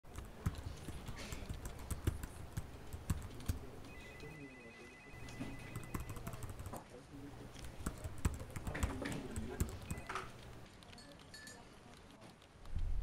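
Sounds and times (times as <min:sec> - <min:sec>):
keyboard typing: 0:00.1 - 0:06.8, 0:07.5 - 0:12.8
steady high tone: 0:03.9 - 0:06.4.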